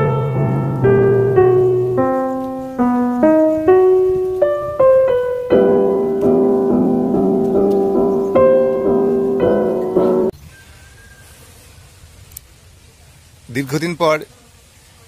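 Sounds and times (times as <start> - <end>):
held low piano chords: 0.0 - 10.3
slow piano melody: 0.0 - 10.4.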